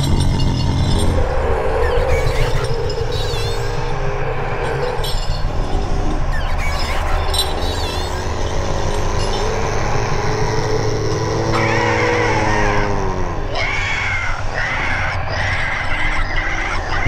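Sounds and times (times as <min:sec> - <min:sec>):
low rumble: 0:00.0 - 0:13.5
high wavering cries: 0:00.0 - 0:17.0
wavering moan-like tone: 0:00.0 - 0:17.0.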